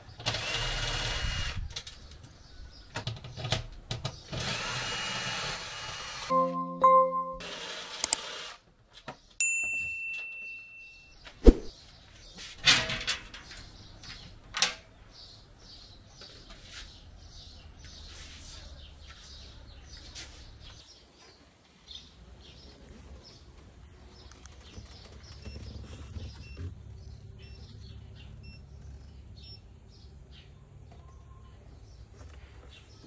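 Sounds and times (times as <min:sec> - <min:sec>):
short electronic ding: 0:06.3 - 0:07.4.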